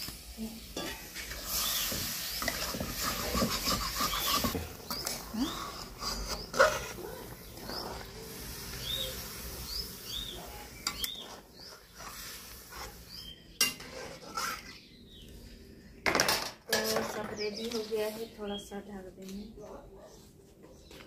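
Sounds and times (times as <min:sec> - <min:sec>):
metal spatula scraping a pan: 0:00.7 - 0:09.0, 0:10.0 - 0:14.9
bird chirping: 0:06.3 - 0:12.0, 0:13.0 - 0:13.6.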